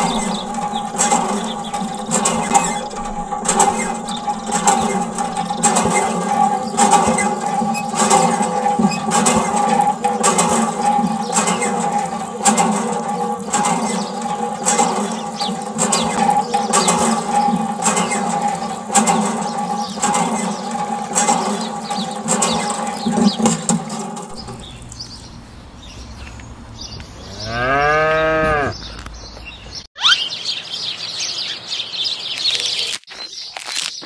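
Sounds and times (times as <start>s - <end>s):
clicks: 0.0s - 25.2s
steady pitched hum: 0.0s - 26.0s
cow mooing: 27.3s - 28.8s.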